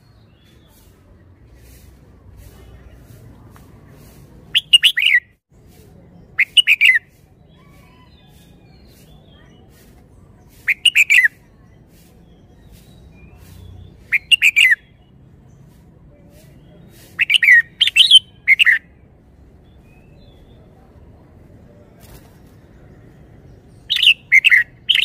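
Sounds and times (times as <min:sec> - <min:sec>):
bird singing: 0:16.7 - 0:18.9, 0:22.8 - 0:25.0.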